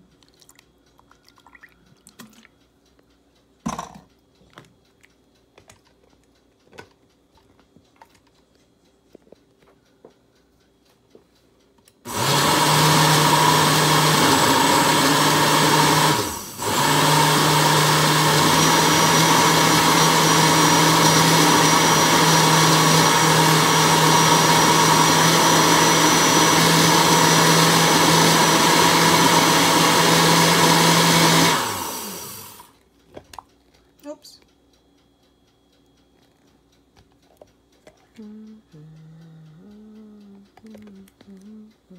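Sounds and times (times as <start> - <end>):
blender motor running: 12.1 - 32.7.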